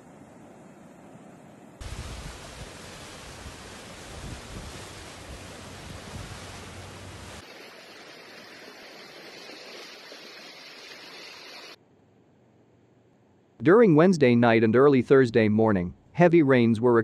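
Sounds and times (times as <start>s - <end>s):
heavy rain hiss: 1.8s - 11.8s
rushing floodwater: 1.8s - 11.8s
low vehicle rumble: 2.0s - 7.4s.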